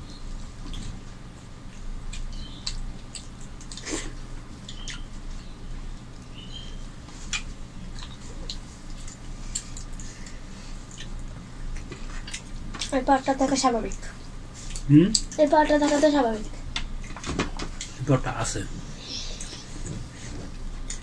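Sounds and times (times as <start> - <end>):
low steady hum: 0.0 - 21.0
chewing and lip-smacking: 1.6 - 6.4, 7.2 - 13.0.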